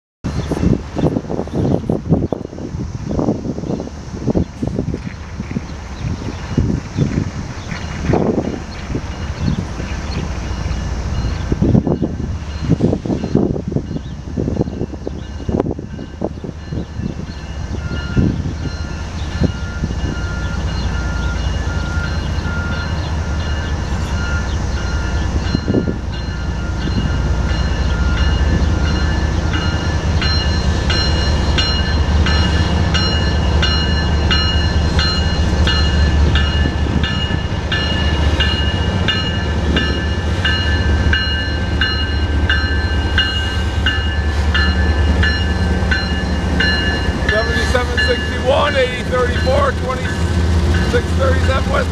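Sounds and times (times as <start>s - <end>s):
diesel locomotive rumble: 0.2s - 51.9s
high ringing bell: 17.4s - 50.2s.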